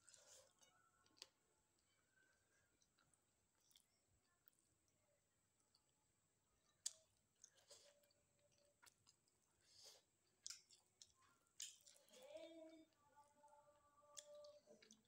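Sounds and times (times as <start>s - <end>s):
close-up chewing: 0.0s - 4.1s, 6.6s - 13.0s, 14.1s - 15.0s
wet mouth clicks and smacks: 10.4s - 12.0s.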